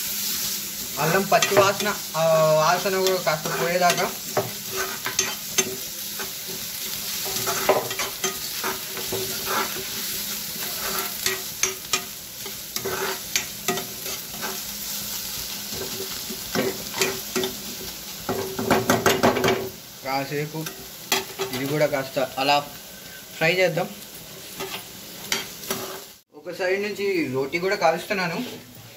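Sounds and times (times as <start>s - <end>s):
onions sizzling in oil: 0.0s - 28.9s
spatula scraping and tapping pan: 3.0s - 6.6s, 7.2s - 10.0s, 10.6s - 14.6s, 24.6s - 26.1s.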